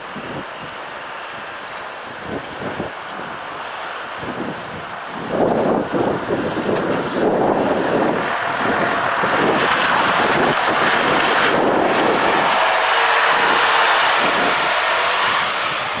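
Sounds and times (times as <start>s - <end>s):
wind buffeting microphone: 0.0s - 16.0s
lorry driving past: 8.1s - 16.0s.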